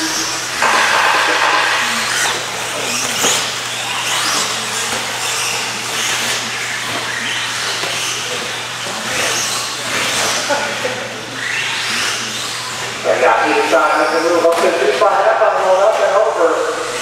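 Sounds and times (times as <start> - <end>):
high motor whines: 0.0 - 7.2
electric rc trucks racing: 0.0 - 17.0.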